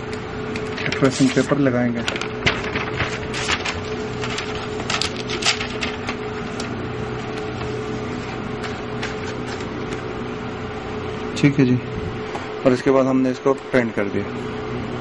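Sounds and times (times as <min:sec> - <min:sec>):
steady low hum: 0:00.0 - 0:15.0
paper rustling into a printer: 0:00.6 - 0:10.0.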